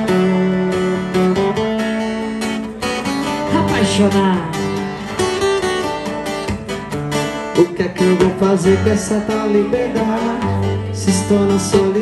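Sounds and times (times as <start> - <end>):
acoustic guitars strummed and picked: 0.0 - 12.0.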